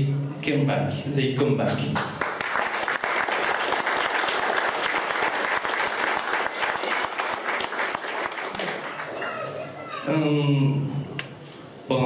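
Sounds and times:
audience applauding: 2.2 - 9.4.

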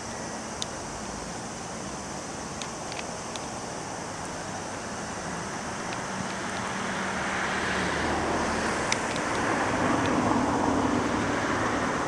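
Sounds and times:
electric train running hum: 0.0 - 12.0.

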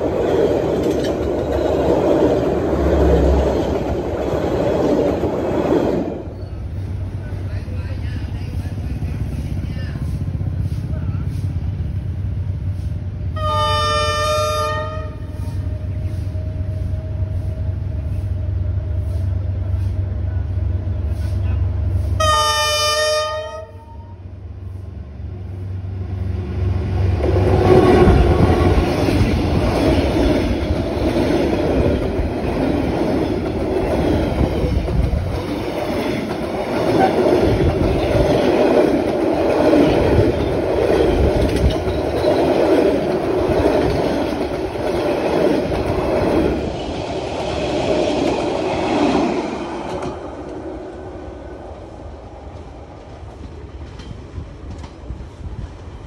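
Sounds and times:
train wheels rattling on rails: 0.0 - 23.6, 24.6 - 56.0
train horn blast: 13.3 - 15.7, 22.2 - 24.2.

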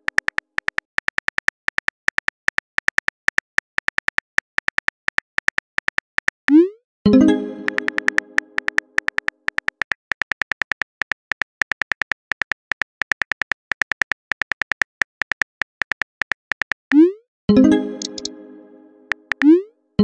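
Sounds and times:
keyboard click sound effects: 6.5 - 9.7, 16.9 - 19.7
message sent chime: 7.1 - 8.7, 17.5 - 19.6.

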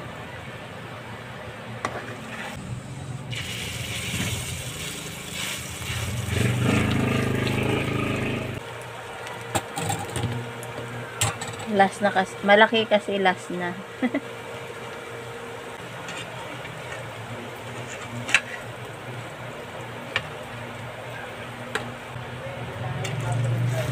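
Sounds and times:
batter sizzling in oil: 2.3 - 7.8
low hum: 2.6 - 9.2.

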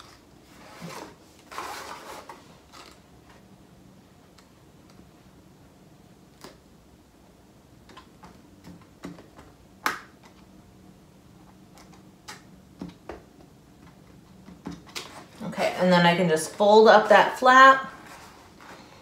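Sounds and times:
faint clicks and taps: 11.4 - 15.1.

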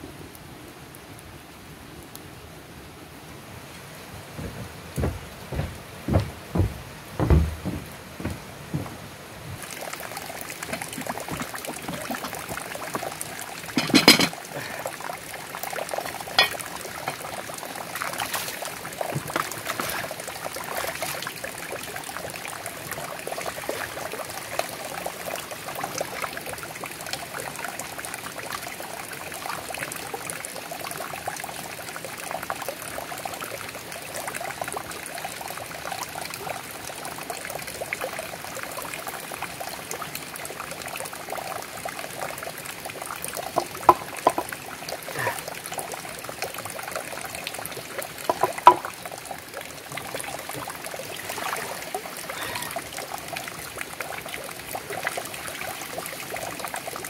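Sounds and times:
water splashing into plastic basin: 9.6 - 13.1, 13.7 - 14.8, 43.5 - 45.4, 48.2 - 49.1.

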